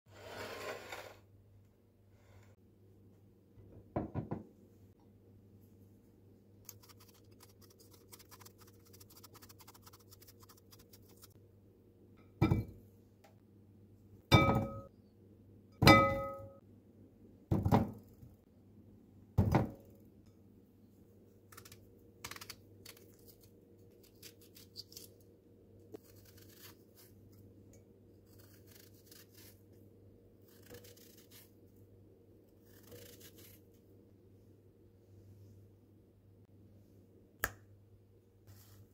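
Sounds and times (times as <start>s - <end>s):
knife scraping softly: 0.1s - 1.3s
apples thunking into glass bowl: 14.3s - 14.9s, 15.8s - 16.5s.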